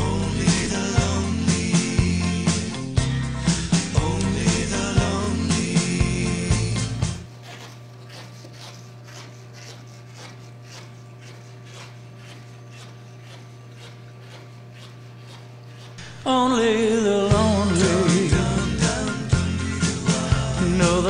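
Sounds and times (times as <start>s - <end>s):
music: 0.0s - 7.3s, 16.0s - 21.0s.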